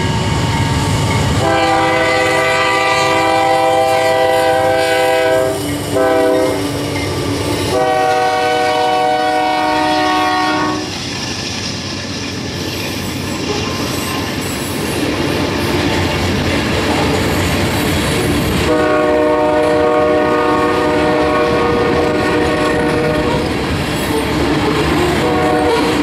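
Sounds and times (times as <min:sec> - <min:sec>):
train wheels rumbling on rails: 0:00.0 - 0:26.0
locomotive air horn: 0:01.4 - 0:06.8, 0:07.7 - 0:10.9, 0:18.6 - 0:23.5, 0:25.0 - 0:26.0.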